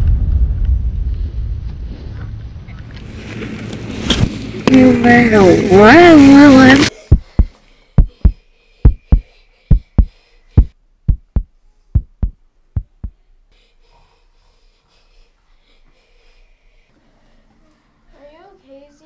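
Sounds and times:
heartbeat thumps: 0:07.0 - 0:13.2.

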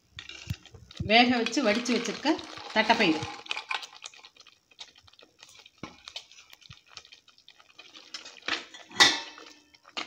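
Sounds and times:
ladle scraping clay pot: 0:00.2 - 0:04.1.

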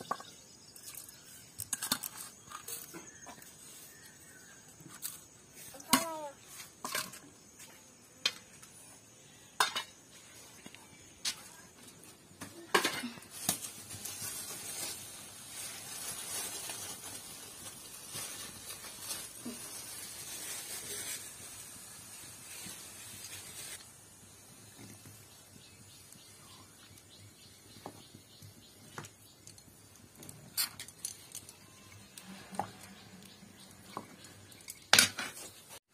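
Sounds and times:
sizzling hiss in hot pan: 0:13.4 - 0:26.7.

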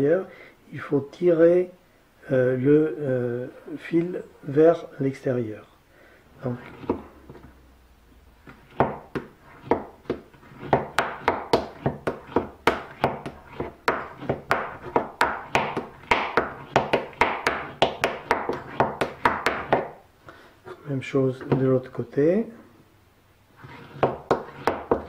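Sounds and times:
burnisher scraping steel edge: 0:23.6 - 0:24.8.

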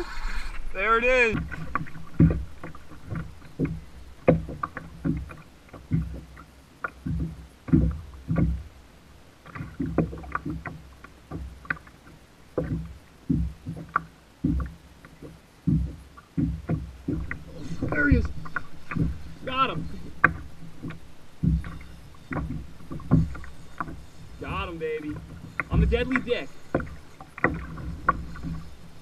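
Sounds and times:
waves slapping kayak hull: 0:00.0 - 0:29.0.

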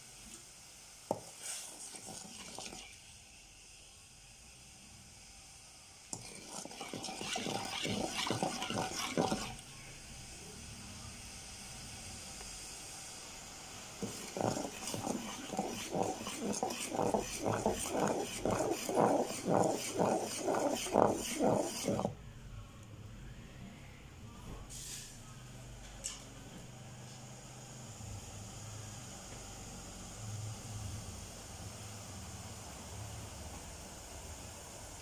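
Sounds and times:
metal spoon stirring in pot: 0:01.2 - 0:03.0, 0:06.1 - 0:09.6, 0:14.0 - 0:22.2.

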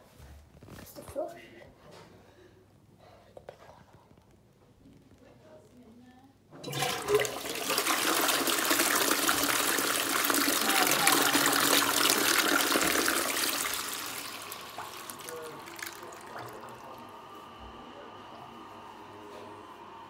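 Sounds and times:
toilet flushing: 0:06.6 - 0:20.0.

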